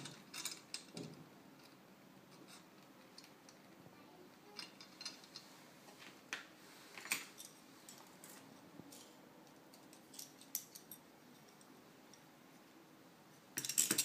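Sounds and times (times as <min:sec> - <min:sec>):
metal parts clicking and clinking: 0:00.0 - 0:03.6, 0:04.5 - 0:05.5, 0:07.0 - 0:11.7, 0:13.6 - 0:14.0.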